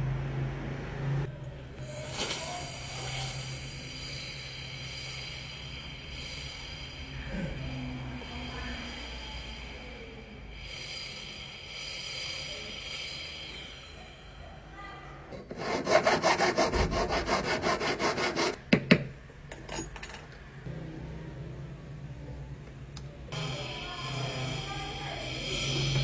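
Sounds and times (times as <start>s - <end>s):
file rasping on metal: 15.3s - 18.6s.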